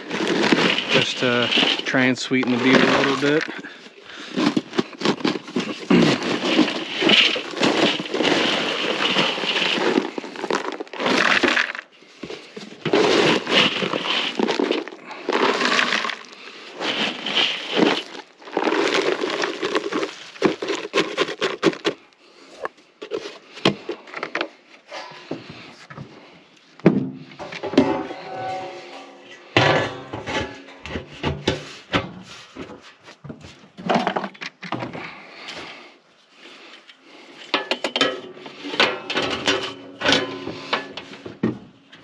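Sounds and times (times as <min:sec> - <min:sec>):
dry crunching and crackling: 0:00.0 - 0:24.6.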